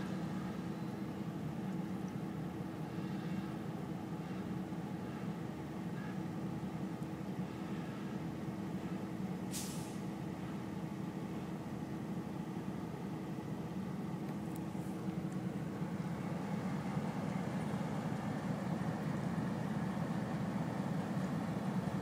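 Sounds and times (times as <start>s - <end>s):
diesel locomotives rumbling: 0.0s - 22.0s
air brakes hissing: 9.5s - 10.1s.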